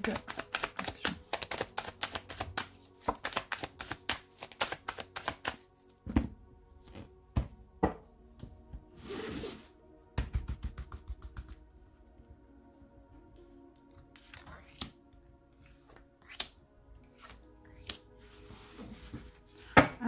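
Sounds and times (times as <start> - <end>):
cards shuffling: 0.0 - 5.6, 13.8 - 18.0
soft background music: 0.0 - 20.0.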